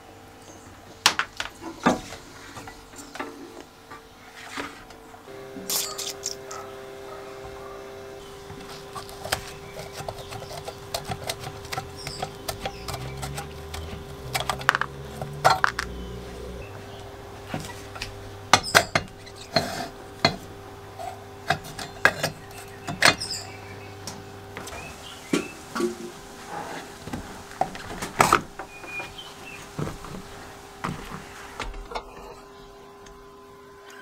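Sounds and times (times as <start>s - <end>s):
faint steady hum: 0.0s - 34.0s
tools and steel parts clinking: 5.7s - 6.6s.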